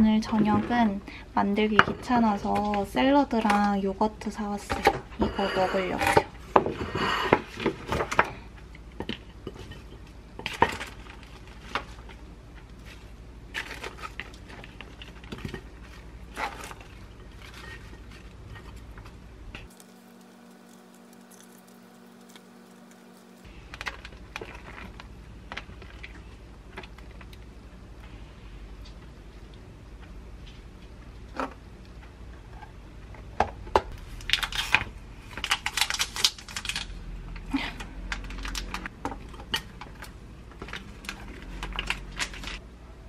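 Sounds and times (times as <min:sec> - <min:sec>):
low steady hum: 0:00.0 - 0:43.0
lettuce leaves rustling: 0:19.7 - 0:25.0.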